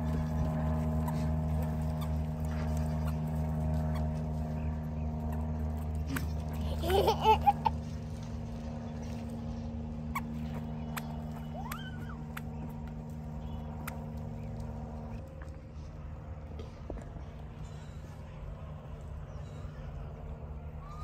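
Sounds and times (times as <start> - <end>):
steady low hum: 0.0 - 21.0
toddler giggling: 6.1 - 7.8.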